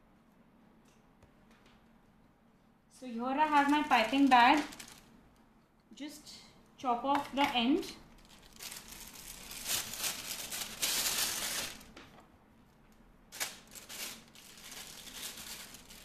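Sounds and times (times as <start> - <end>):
plastic bag crinkling: 3.3 - 5.2, 8.1 - 12.2, 13.3 - 16.0.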